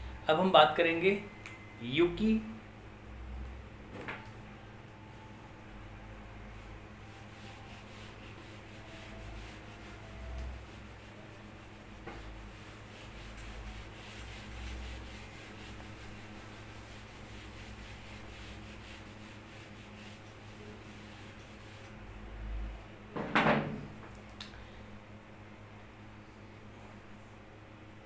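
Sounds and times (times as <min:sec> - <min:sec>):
eraser rubbing on whiteboard: 0:07.2 - 0:21.9.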